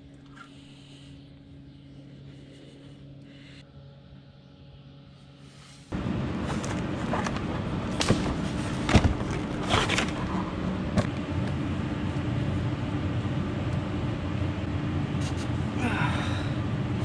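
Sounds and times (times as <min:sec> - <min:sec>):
steady mechanical hum: 0:00.0 - 0:17.0
rummaging in cardboard box: 0:06.4 - 0:10.5.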